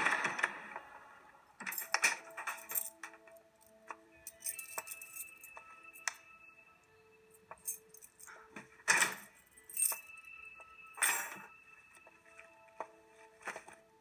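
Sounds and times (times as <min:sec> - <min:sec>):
faint steady tones: 0:00.0 - 0:14.0
keys jangling: 0:01.6 - 0:06.2, 0:07.6 - 0:10.2, 0:11.0 - 0:11.5.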